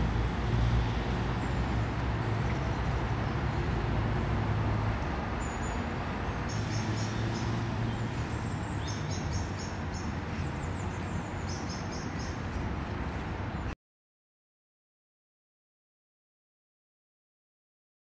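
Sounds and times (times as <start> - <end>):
road traffic rumble: 0.0 - 13.8.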